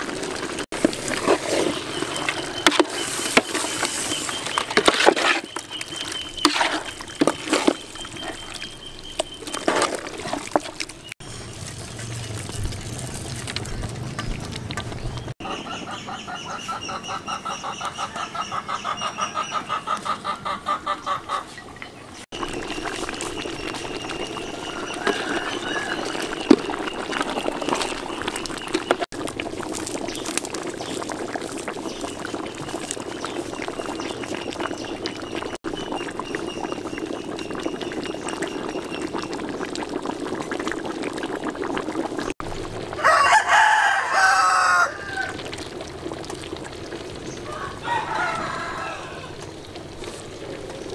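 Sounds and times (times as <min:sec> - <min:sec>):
hen clucking: 0:15.4 - 0:29.1
rooster crowing: 0:24.6 - 0:26.3, 0:43.0 - 0:45.4, 0:47.4 - 0:49.4.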